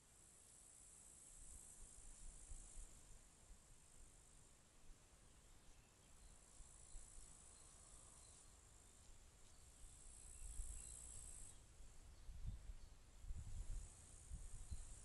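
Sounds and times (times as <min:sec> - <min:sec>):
insects chirring in grass: 0:06.2 - 0:11.6, 0:13.3 - 0:15.0.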